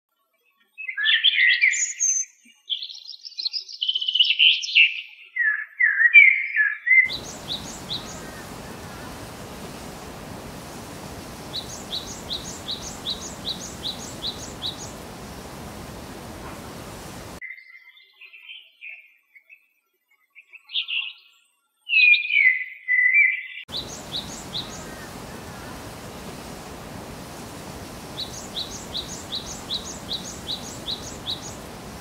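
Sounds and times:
short repeated falling bird notes: 7.1s - 17.4s
songbird warbling: 7.1s - 17.4s, 23.7s - 32.0s
steady hiss: 7.1s - 17.4s, 23.7s - 32.0s.

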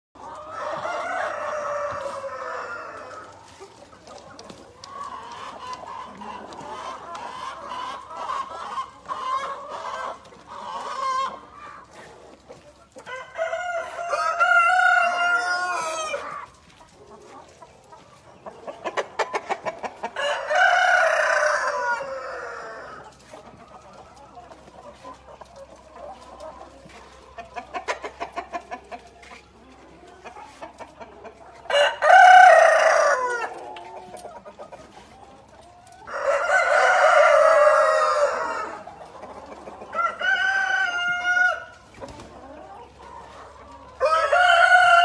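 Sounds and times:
hens clucking: 0.2s - 45.0s
rooster crowing: 13.1s - 16.3s, 31.7s - 33.5s, 44.0s - 45.0s.

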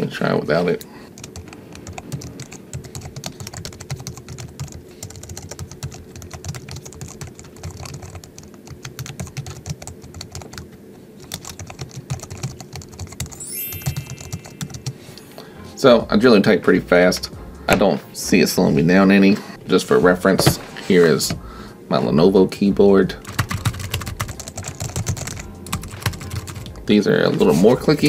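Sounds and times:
keyboard typing: 1.1s - 15.2s, 23.2s - 26.8s
rising electronic tone: 13.4s - 15.2s.

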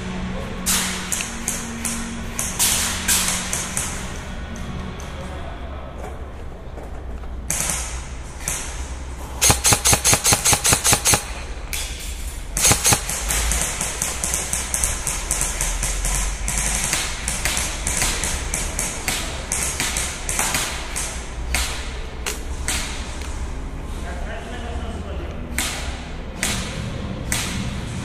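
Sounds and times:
airsoft gun shots: 9.4s - 11.6s, 12.6s - 18.3s.

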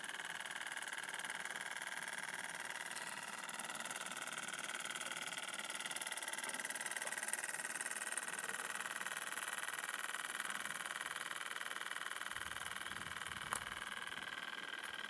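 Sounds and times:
small steam engine beating: 0.0s - 15.0s
steady whine: 10.2s - 15.0s.

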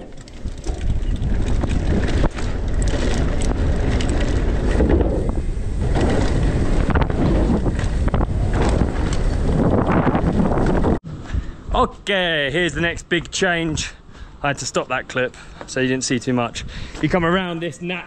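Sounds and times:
bike rattling and knocking: 0.0s - 11.0s
wind buffeting microphone: 0.0s - 14.4s, 16.4s - 17.5s
bike tyre rumble: 0.0s - 17.3s.

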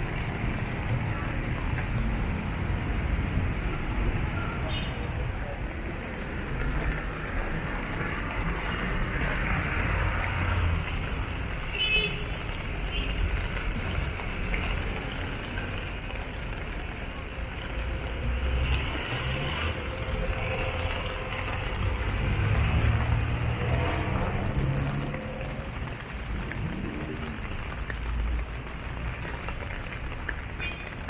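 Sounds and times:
passing cars rumbling: 12.4s - 30.2s.

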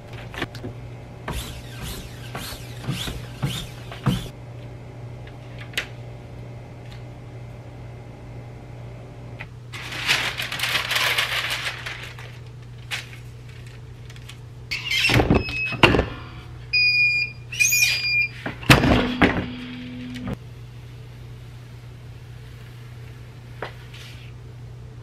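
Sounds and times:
low steady hum: 0.0s - 25.0s
rustling of shirt and plastic sheet: 9.7s - 14.5s
heat press clunks and squeal: 14.7s - 20.2s.

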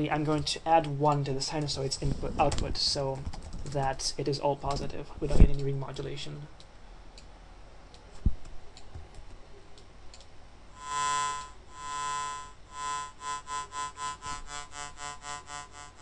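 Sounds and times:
pulsing sawtooth synth tone: 10.8s - 16.0s.

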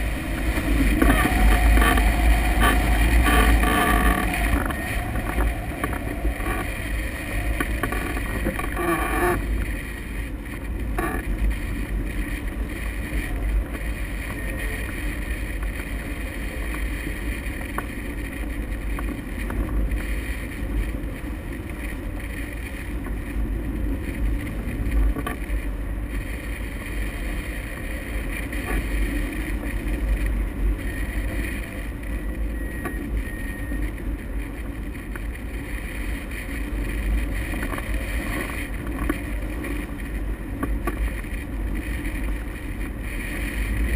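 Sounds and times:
wind buffeting microphone: 0.0s - 14.3s
deep rumble: 0.0s - 43.9s.

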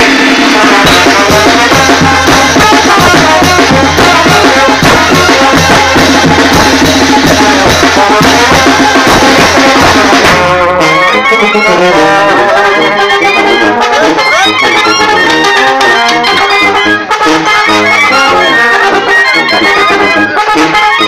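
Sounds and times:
bass drum and cymbal beat: 0.0s - 10.8s
brass band music: 0.0s - 21.0s.

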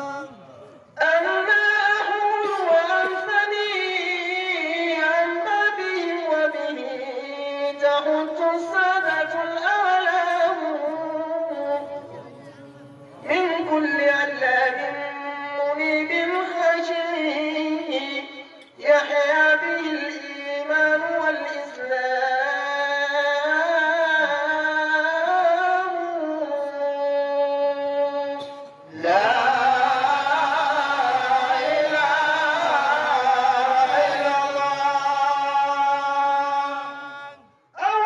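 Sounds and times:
person chanting: 0.0s - 38.0s
men's chorus singing: 28.9s - 37.4s.

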